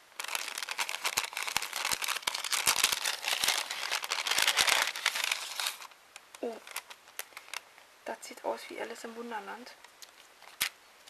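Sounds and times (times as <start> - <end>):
packaging crinkling and rustling: 0.0 - 7.7, 10.0 - 10.8.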